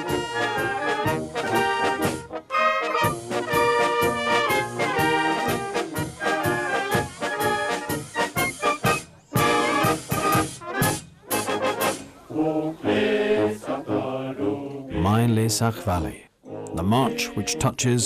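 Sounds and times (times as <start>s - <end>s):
brass band playing: 0.0s - 12.2s.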